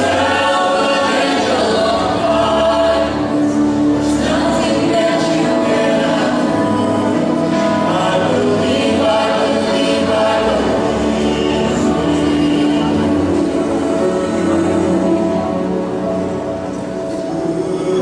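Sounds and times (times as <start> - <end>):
mixed choir singing in harmony: 0.0 - 18.0.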